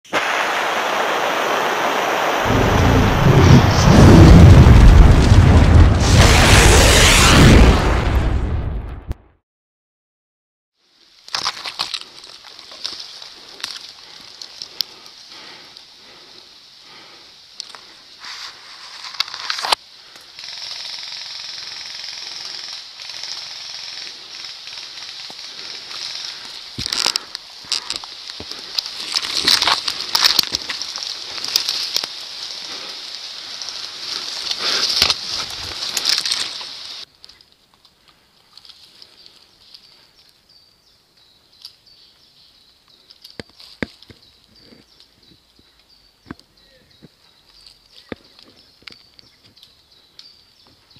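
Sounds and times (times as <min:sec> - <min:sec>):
steady high hiss: 0:00.1 - 0:04.0, 0:10.8 - 0:43.7
twigs snapping: 0:11.2 - 0:14.9, 0:25.0 - 0:39.8
branches brushing past: 0:24.5 - 0:37.6
footsteps rustling through leaves: 0:25.8 - 0:37.1
birds chirping: 0:39.0 - 0:50.9.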